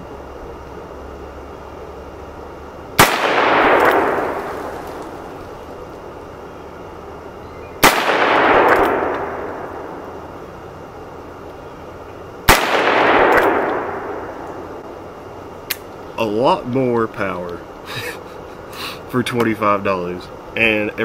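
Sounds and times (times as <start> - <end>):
revolver shots with rolling echo: 3.0 - 5.9, 7.8 - 10.3, 12.4 - 14.9.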